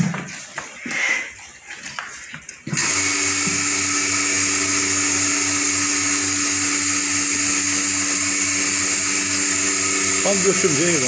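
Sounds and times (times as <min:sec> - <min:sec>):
pressure washer motor hum: 0:02.6 - 0:11.0.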